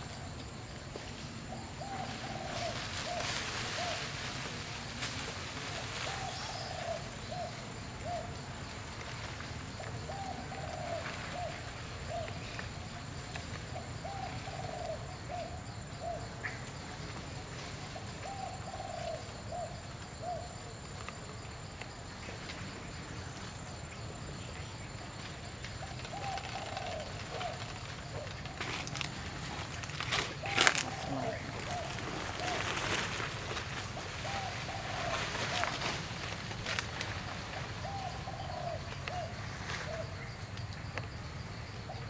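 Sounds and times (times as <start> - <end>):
low background noise: 0.0 - 42.0
dove cooing: 1.4 - 5.0, 5.6 - 8.6, 9.7 - 12.8, 13.7 - 16.5, 17.8 - 20.8, 25.8 - 36.8, 37.4 - 40.2.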